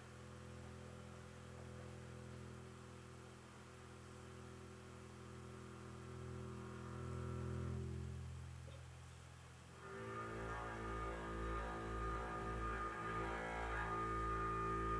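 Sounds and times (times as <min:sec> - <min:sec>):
low instrumental drone: 0:09.7 - 0:14.9.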